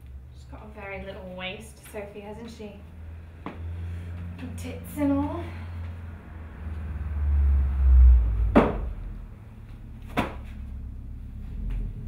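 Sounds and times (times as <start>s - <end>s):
low rumble: 0.0s - 12.0s
sharp knocks: 8.5s - 8.9s, 10.1s - 10.5s.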